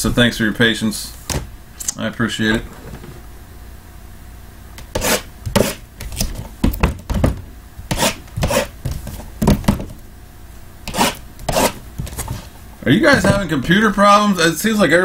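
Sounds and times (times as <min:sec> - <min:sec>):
boxes knocking and scraping: 0:08.4 - 0:10.0.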